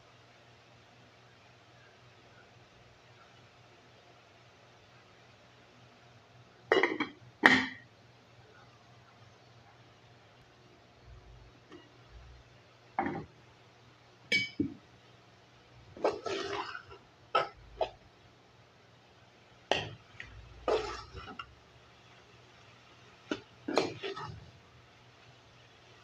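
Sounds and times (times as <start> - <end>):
pot lid lifted and set down: 6.7 - 7.8, 13.0 - 13.3, 16.0 - 18.0, 19.7 - 20.0, 23.3 - 24.4
metal spoon stirring in pot: 15.9 - 18.0, 19.7 - 21.5, 23.3 - 24.6.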